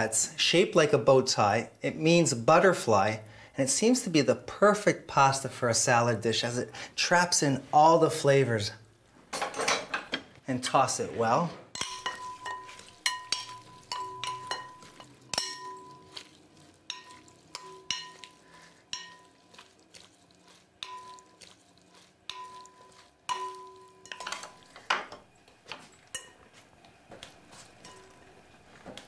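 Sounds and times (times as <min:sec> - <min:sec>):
glass bowl ringing: 0:11.8 - 0:16.2, 0:23.3 - 0:24.5
spoons clinking on glass bowl: 0:11.8 - 0:19.7, 0:20.8 - 0:21.6, 0:22.3 - 0:25.2, 0:25.8 - 0:26.6, 0:27.8 - 0:28.3.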